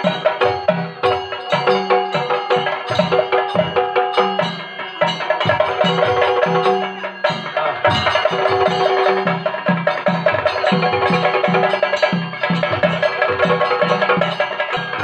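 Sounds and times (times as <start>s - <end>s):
drums beaten in fast rhythm: 0.0s - 15.0s.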